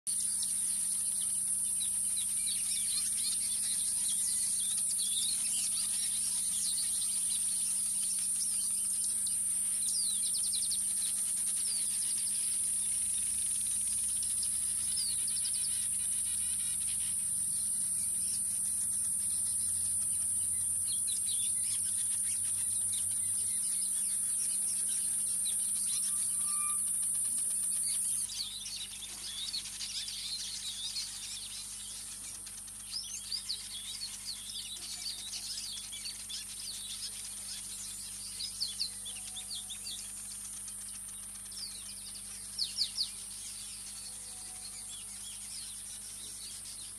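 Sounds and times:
birds chirping and twittering: 0.1s - 46.9s.

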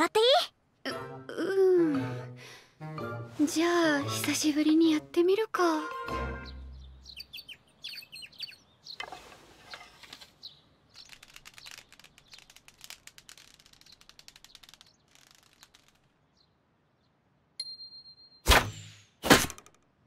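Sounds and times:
sparrows chirping: 5.6s - 12.8s, 16.2s - 17.3s
wings fluttering: 9.0s - 16.4s
faint rapid crackling: 10.0s - 16.4s.

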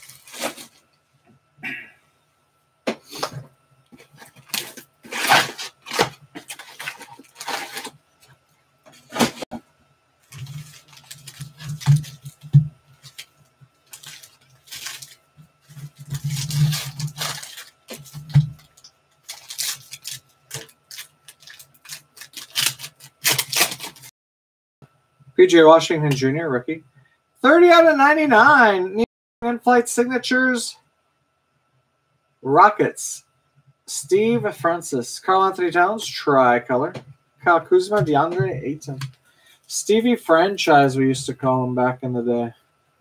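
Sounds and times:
foil wrappers crinkling and tearing: 0.0s - 0.8s, 4.0s - 8.0s, 10.2s - 24.1s.

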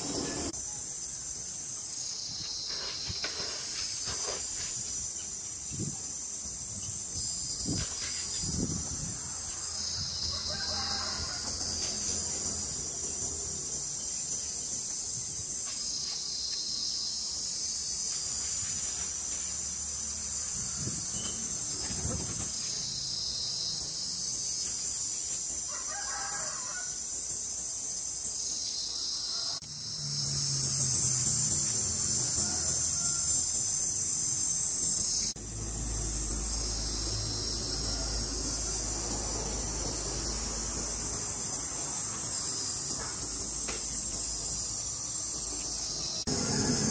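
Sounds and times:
pulsing insect chorus: 0.0s - 46.9s
distant rooster crowing: 9.2s - 12.3s, 25.6s - 27.1s, 29.1s - 29.7s, 31.9s - 33.9s, 37.4s - 40.3s, 46.1s - 46.9s.

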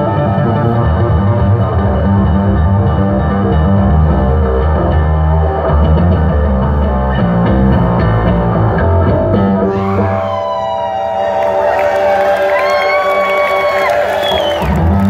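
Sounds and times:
electric bass playing low notes: 0.0s - 11.4s, 14.3s - 15.0s
crowd cheering: 9.6s - 15.0s.

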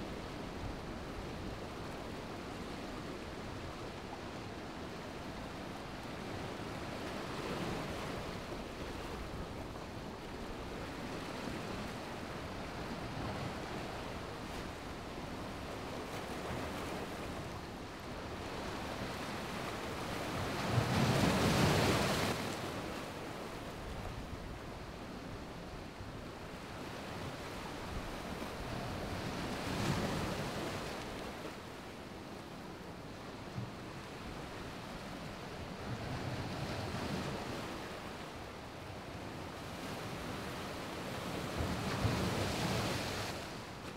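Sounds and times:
ocean surf washing over beach: 0.0s - 43.9s
wind: 0.0s - 43.9s.

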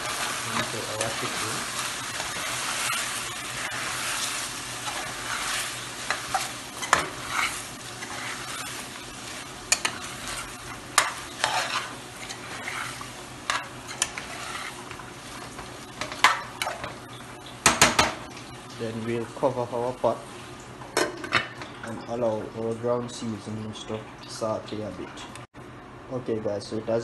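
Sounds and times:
spoon scraping a pot: 0.0s - 15.0s
food sizzling: 0.0s - 25.0s.

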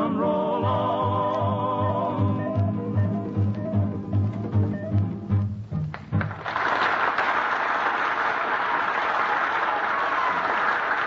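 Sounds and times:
string band playing: 0.0s - 6.5s
audience applause: 5.9s - 11.0s.

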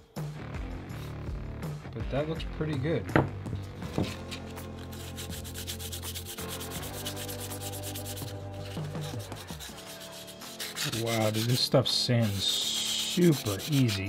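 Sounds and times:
sandpaper rubbing on resin: 4.0s - 14.0s.

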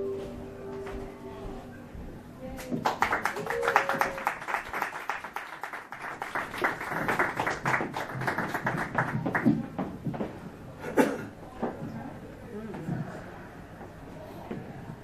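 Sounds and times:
small audience clapping: 2.6s - 10.0s.

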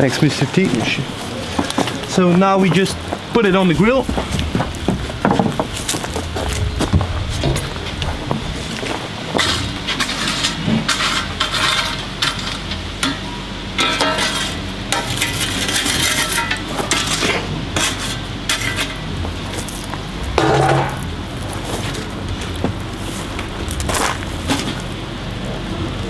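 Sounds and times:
metal tools scraping a grill: 9.4s - 19.8s.

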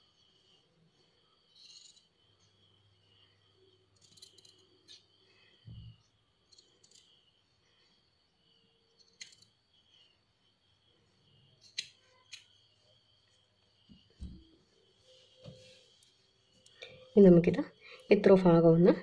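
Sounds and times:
soft thump: 14.2s - 14.5s.

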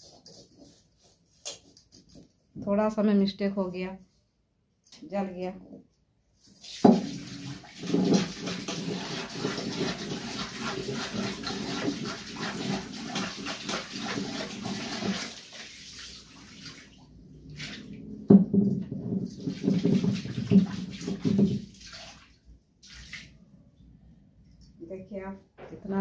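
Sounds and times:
metal pan being scrubbed: 7.8s - 15.4s.

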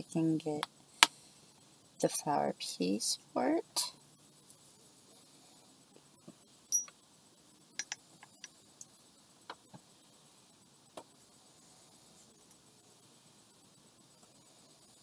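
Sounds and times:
high glassy ring: 6.7s - 6.9s
glass pieces clicking and tapping: 6.7s - 7.0s, 7.8s - 8.0s.

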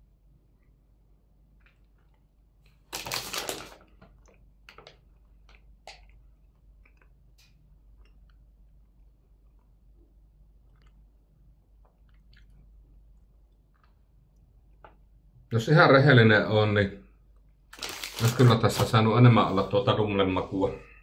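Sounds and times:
wrapper crackling: 2.8s - 4.0s, 17.7s - 19.0s
biscuit crunching: 17.3s - 19.0s.

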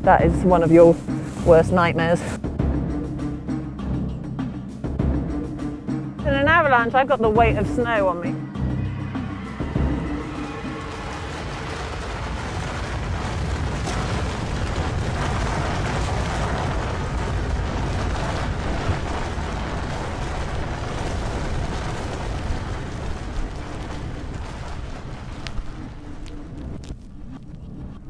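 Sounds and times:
avalanche rumbling roar: 8.2s - 26.9s.

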